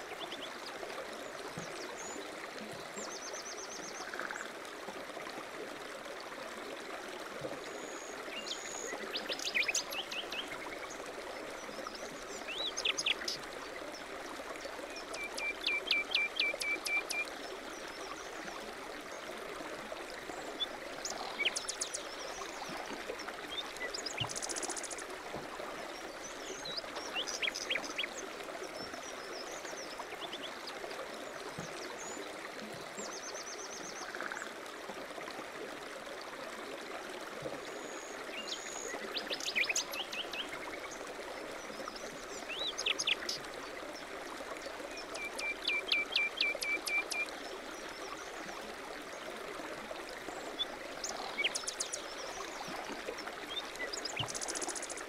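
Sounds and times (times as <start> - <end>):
running stream: 0.0 - 55.0.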